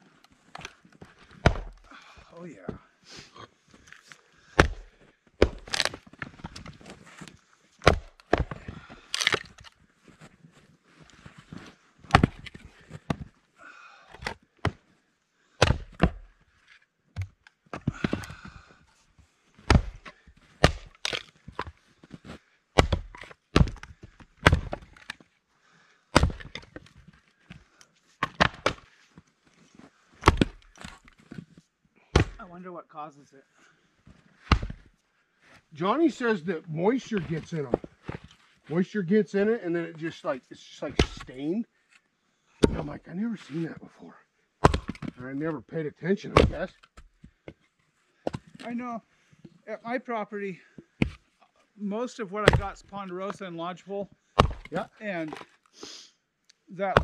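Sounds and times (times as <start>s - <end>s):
axes chopping wood: 1.3s - 1.9s, 4.6s - 6.0s, 7.8s - 9.7s, 12.1s - 13.3s, 15.6s - 16.2s, 17.2s - 18.5s, 19.6s - 21.7s, 22.8s - 25.2s, 26.2s - 26.8s, 28.2s - 28.9s, 30.2s - 31.1s, 32.1s - 32.5s, 34.4s - 34.9s, 41.0s - 41.4s, 42.6s - 43.0s, 44.6s - 45.1s, 46.3s - 47.1s, 48.2s - 48.6s, 52.4s - 52.8s, 54.4s - 55.4s
wood cracking as it splits: 4.6s - 6.8s, 7.8s - 9.8s, 19.7s - 21.8s, 22.8s - 25.2s, 26.1s - 26.9s, 30.2s - 31.2s.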